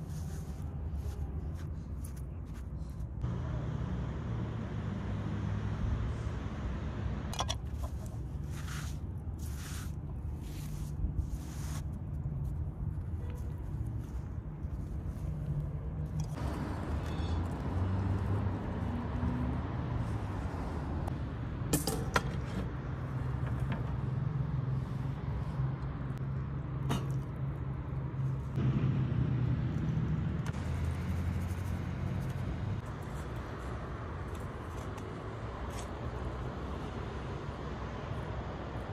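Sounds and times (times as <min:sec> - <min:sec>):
low rumble of city traffic: 0:00.0 - 0:38.9.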